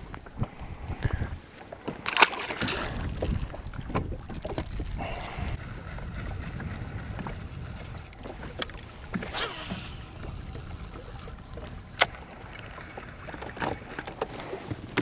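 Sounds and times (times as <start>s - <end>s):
water around a boat: 0.0s - 15.0s
wind: 0.0s - 15.0s
fishing reel clicks and knocks: 3.0s - 5.6s.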